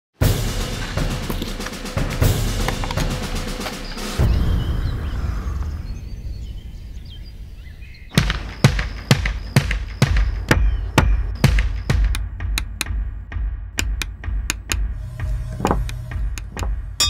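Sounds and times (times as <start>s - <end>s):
birds chirping faintly: 2.6s - 13.1s
low rumble: 13.0s - 17.0s.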